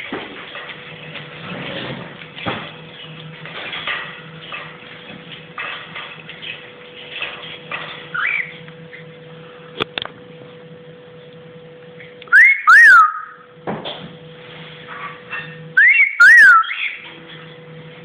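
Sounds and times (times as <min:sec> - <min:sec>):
cockatiel whistling: 0:08.1 - 0:08.5, 0:12.3 - 0:13.4, 0:15.8 - 0:17.0
cockatiel chirp: 0:08.2 - 0:08.5, 0:12.3 - 0:13.4, 0:15.8 - 0:17.0.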